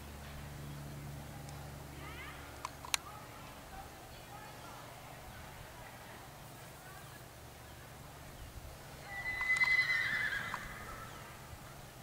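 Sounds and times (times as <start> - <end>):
horse whinnying: 9.1 - 11.1.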